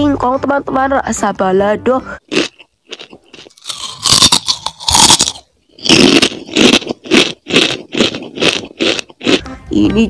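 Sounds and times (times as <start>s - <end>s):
crunching crispy chips: 2.3s - 9.4s.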